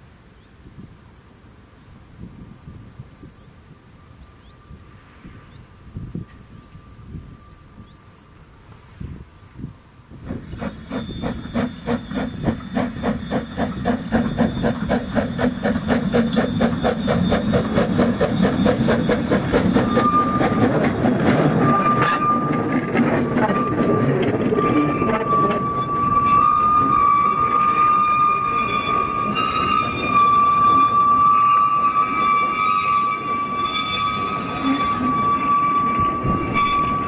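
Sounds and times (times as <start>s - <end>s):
high steady squeal: 2.6s - 37.0s
steam locomotive chuffing: 10.1s - 37.0s.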